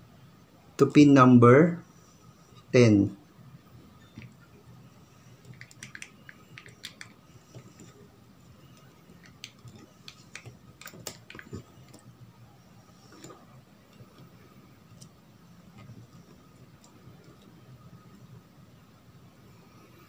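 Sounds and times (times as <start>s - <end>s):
jumper wires clicking and rustling: 5.4s - 12.1s.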